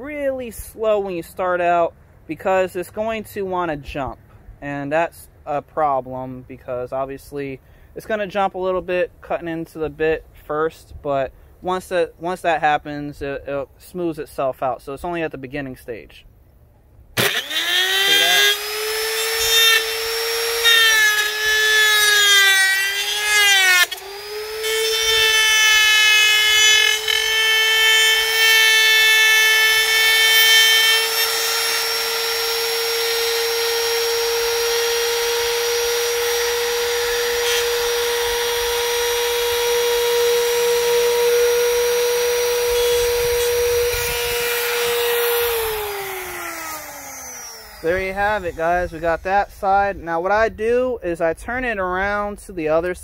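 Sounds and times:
trim router whining cutting metal: 17.2s - 49.3s.

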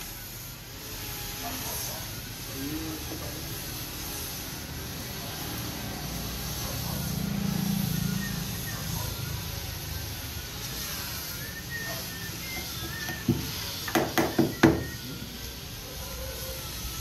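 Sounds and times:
hammer knocking on wooden door: 13.3s - 14.8s.

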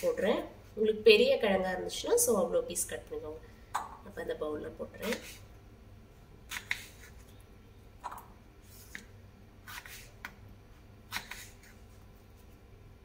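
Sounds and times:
knife slicing potato on board: 5.0s - 5.4s, 6.5s - 7.1s, 8.0s - 10.4s, 11.1s - 11.8s.

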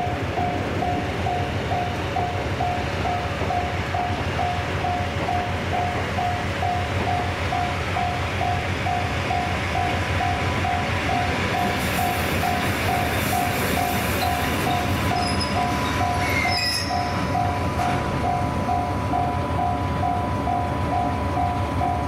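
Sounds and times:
level-crossing warning bell: 0.0s - 22.0s
railway noise: 0.0s - 22.0s
high squeals: 14.7s - 17.2s.

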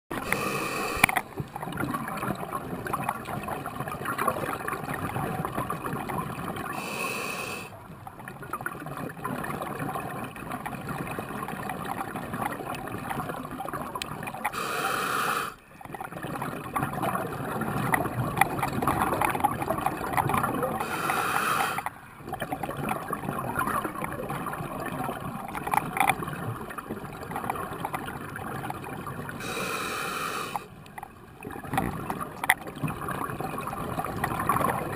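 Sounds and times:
exhaled bubbles underwater: 0.1s - 34.9s
regulator inhalation hiss: 0.3s - 1.1s, 6.8s - 7.7s, 14.6s - 15.6s, 20.8s - 21.9s, 29.4s - 30.7s.

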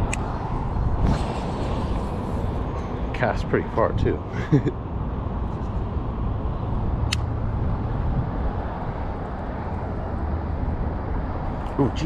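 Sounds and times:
low outdoor rumble: 0.0s - 12.0s
sharp click: 7.0s - 7.3s.

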